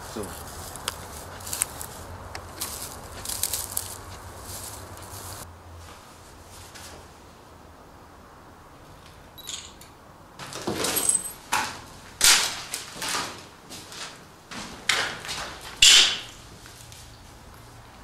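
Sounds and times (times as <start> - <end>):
footsteps on rubble: 0.0 - 5.5, 12.1 - 15.8.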